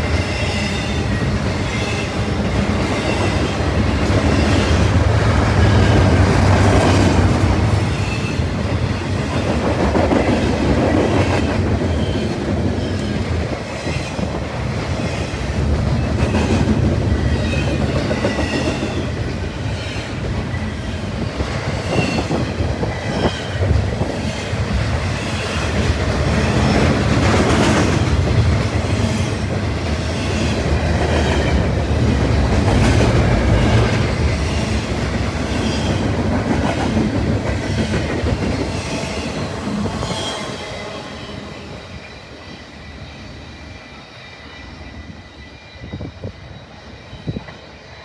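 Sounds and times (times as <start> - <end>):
train wheels rumbling on rail: 0.0 - 48.0
high wheel squeal: 40.0 - 48.0.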